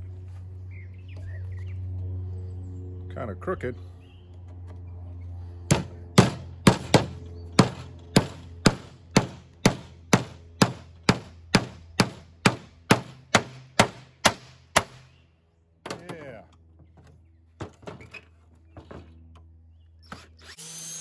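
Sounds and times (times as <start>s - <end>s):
hammer striking nail into wood: 5.7s - 15.1s.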